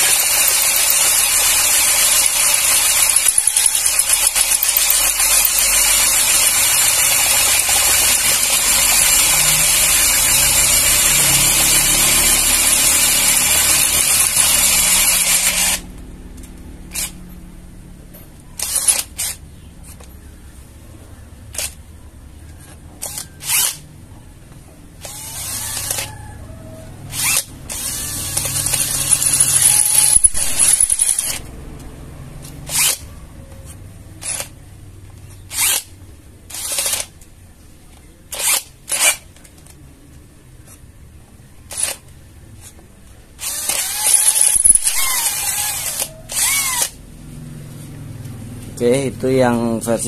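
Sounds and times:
cordless drill boring into steel: 0.0 - 15.8, 18.6 - 19.4, 23.0 - 23.8, 25.0 - 26.1, 27.1 - 31.4, 32.7 - 33.0, 35.5 - 35.9, 36.5 - 37.0, 38.3 - 39.2, 43.4 - 47.0.

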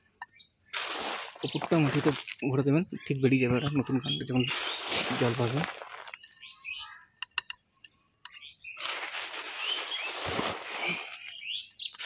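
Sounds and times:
birds chirping: 0.0 - 12.0
potting soil rustling into a pot: 0.7 - 2.6, 4.3 - 6.4, 8.7 - 12.0
light clicks of soil clods: 4.5 - 6.4.

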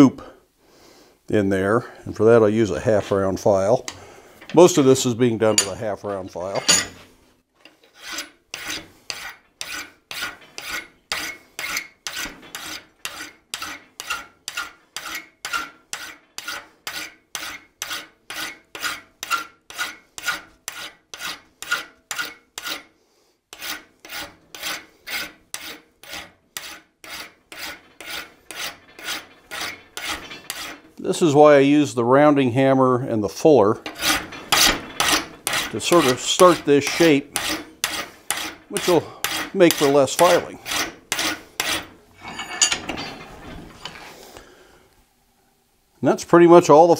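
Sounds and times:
hand file rasping on metal: 6.4 - 31.0, 33.8 - 42.8.

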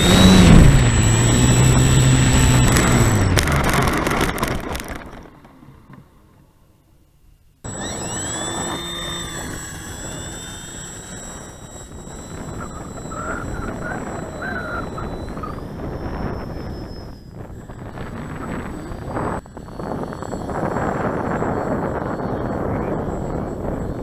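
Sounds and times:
wind noise rushing: 0.0 - 4.6
model plane motor whine: 0.0 - 5.4, 7.6 - 24.0.

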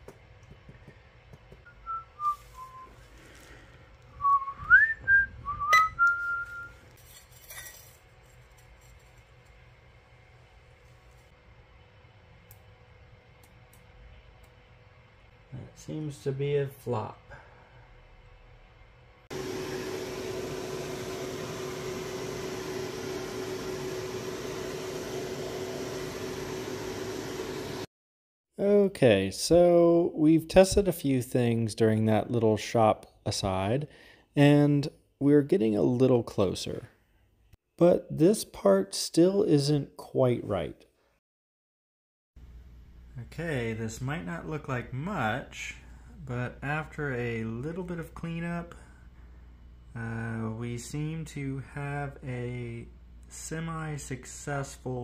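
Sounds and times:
person whistling a tune: 1.7 - 3.0, 4.1 - 6.8.

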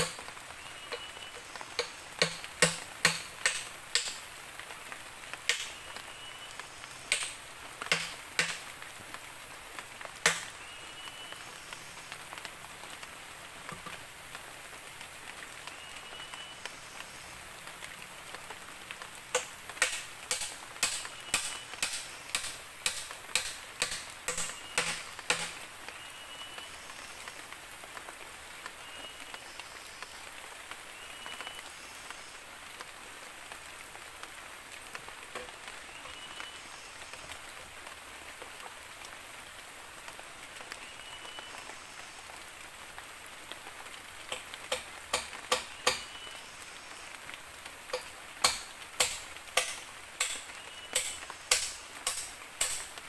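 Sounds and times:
bamboo knocking: 0.0 - 0.3, 1.8 - 4.2, 7.1 - 8.6, 10.3 - 10.5, 19.3 - 25.6, 44.3 - 46.1, 47.9 - 52.9
rain falling: 0.0 - 53.0.

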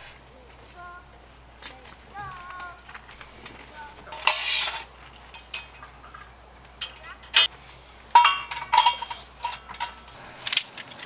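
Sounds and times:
spoon scraping metal cup: 4.1 - 6.2
spoon clinking in metal cup: 4.2 - 7.5, 8.2 - 10.2.

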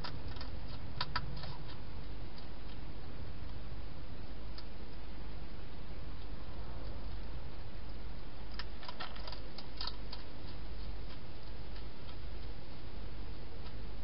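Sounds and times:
hedgehog chewing clicks: 0.0 - 3.6, 8.5 - 12.6
steady background hiss: 0.0 - 14.0.

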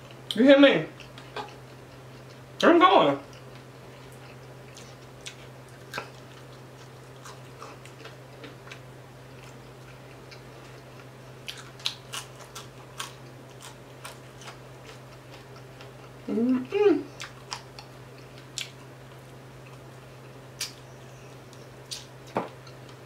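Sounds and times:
steady low hum: 0.0 - 23.0
chewing crunches and clicks: 3.2 - 16.2, 17.2 - 20.8.

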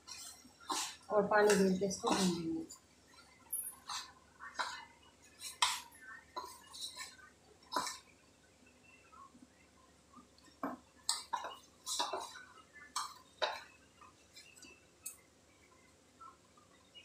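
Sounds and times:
dough clinking and scraping on steel: 0.0 - 8.1, 10.6 - 15.2.

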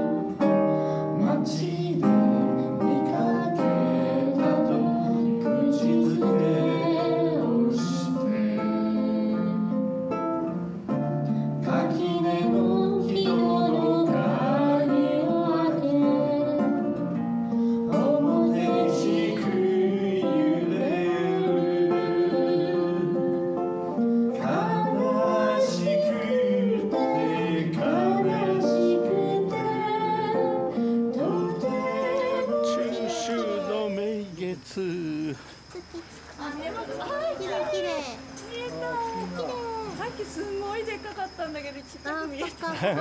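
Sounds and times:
acoustic guitar: 0.0 - 43.0
man singing folk song: 1.2 - 9.6, 11.6 - 17.1, 17.9 - 23.6, 24.3 - 30.5, 31.1 - 35.6.

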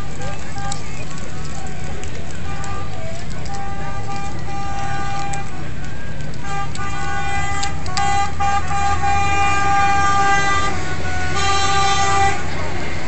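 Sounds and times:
low engine rumble: 0.0 - 13.0
vehicle horn blasts: 3.5 - 5.6, 6.4 - 12.7.

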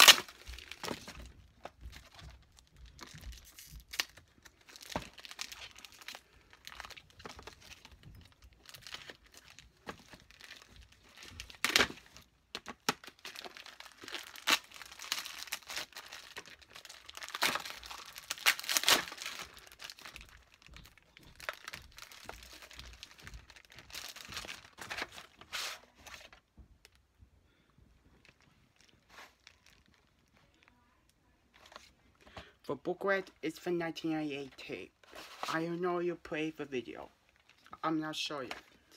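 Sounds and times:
plastic wrapping tearing and crinkling: 0.0 - 26.4, 28.2 - 30.8.

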